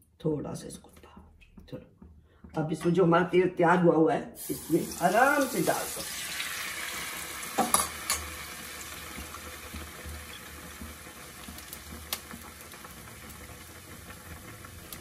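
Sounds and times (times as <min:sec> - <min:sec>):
bread sizzling in hot oil: 0:04.4 - 0:15.0.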